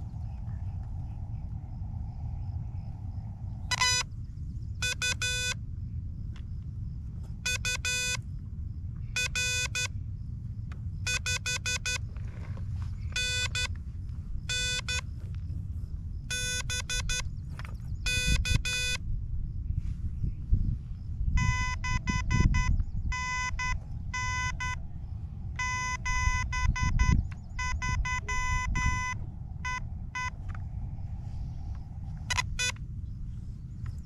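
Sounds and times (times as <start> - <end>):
steady low rumble: 0.0 - 34.0
morse code beeps: 3.7 - 4.1, 4.8 - 5.6, 7.4 - 8.2, 9.1 - 9.9, 11.0 - 12.0, 13.1 - 13.7, 14.5 - 15.0, 16.3 - 17.3, 18.0 - 19.0, 21.4 - 24.8, 25.6 - 30.4, 32.2 - 32.8.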